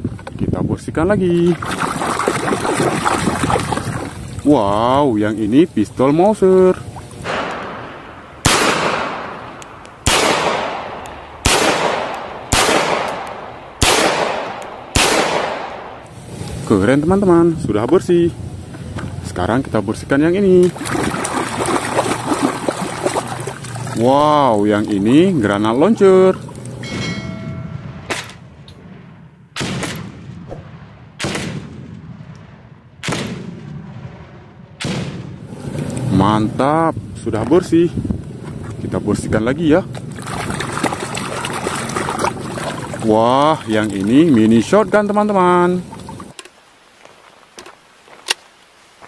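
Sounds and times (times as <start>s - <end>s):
pistol shots with echo: 7.3s - 16.0s, 29.6s - 32.1s, 33.0s - 33.7s.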